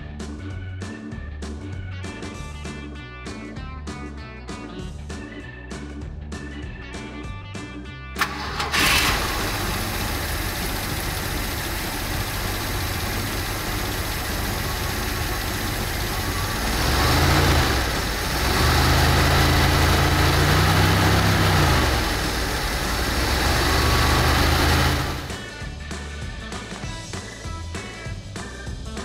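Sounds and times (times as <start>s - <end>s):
car engine idling and revving: 8.2s - 25.6s.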